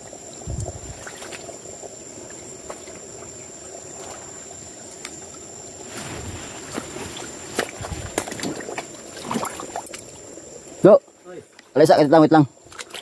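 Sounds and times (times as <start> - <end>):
stream flowing and trickling: 0.0 - 13.0
rustling through undergrowth: 5.5 - 9.8.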